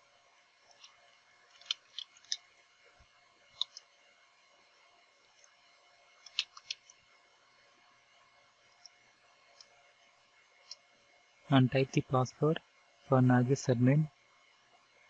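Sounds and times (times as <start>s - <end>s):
faint steady hum: 0.0s - 15.0s
computer keyboard typing: 1.5s - 2.4s, 3.6s - 3.8s, 6.3s - 6.8s.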